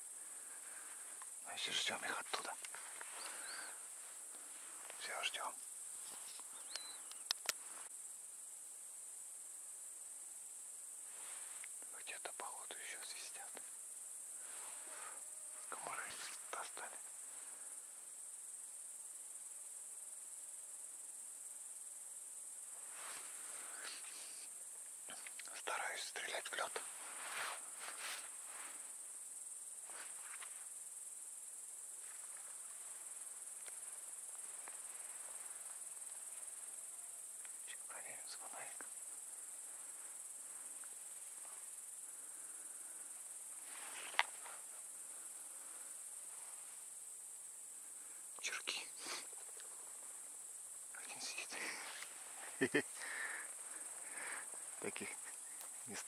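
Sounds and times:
crickets chirping: 0:00.0 - 0:56.0
soft rustle: 0:00.2 - 0:08.0, 0:11.0 - 0:13.8, 0:14.4 - 0:17.8, 0:22.6 - 0:31.0, 0:31.7 - 0:56.0
sharp click: 0:06.4 - 0:07.6.

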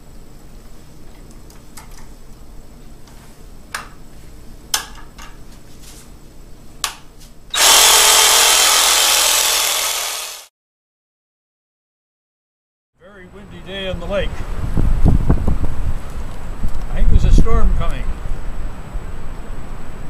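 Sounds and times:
reciprocating saw motor running: 0:07.5 - 0:10.5.

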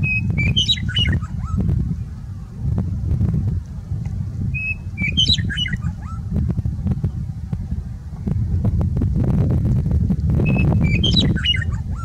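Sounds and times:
meadowlark singing: 0:00.0 - 0:01.8, 0:04.4 - 0:06.2, 0:10.4 - 0:12.0
steady low rumble: 0:00.0 - 0:12.0.

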